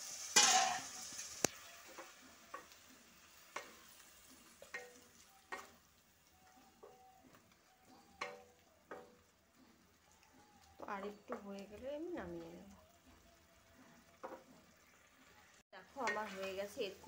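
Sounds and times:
quiet sizzle of curry: 0.0 - 17.0
spatula scraping and knocking a pan: 0.2 - 1.2, 1.8 - 5.8, 6.8 - 9.8, 13.1 - 14.8, 16.0 - 16.6.

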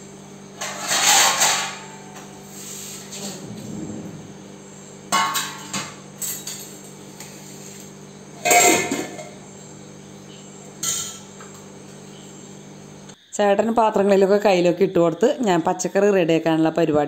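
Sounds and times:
steady low hum: 0.0 - 13.4
metal dishes clattering: 0.6 - 2.2, 5.1 - 6.8, 8.4 - 9.4, 10.8 - 11.3.

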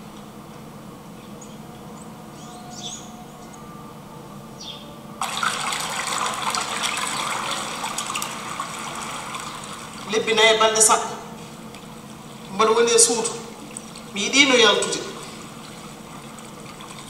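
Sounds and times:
rushing water washing against bank: 5.2 - 17.0.

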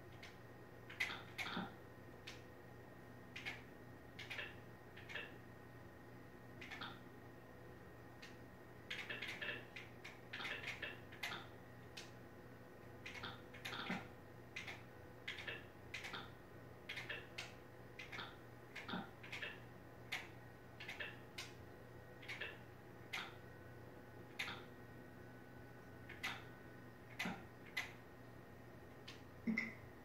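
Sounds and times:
low appliance hum: 0.0 - 30.0
light clicking and ticking: 0.1 - 2.4, 3.3 - 5.4, 8.2 - 12.2, 13.0 - 21.6, 24.3 - 24.7.

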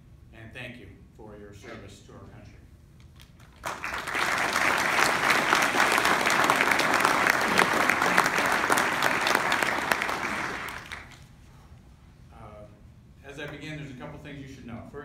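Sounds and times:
audience applauding: 3.5 - 11.2.

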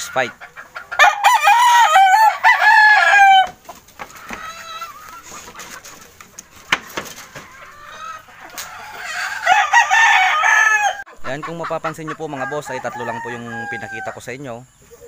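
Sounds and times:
faint crowing and clucking: 0.0 - 15.0
rooster crowing loudly: 0.9 - 3.6, 8.7 - 11.0, 12.4 - 14.2.

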